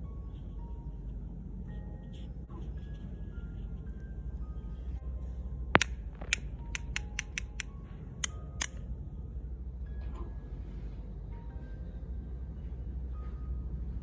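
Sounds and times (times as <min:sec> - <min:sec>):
pen tapping on plastic pen: 0:05.8 - 0:07.6.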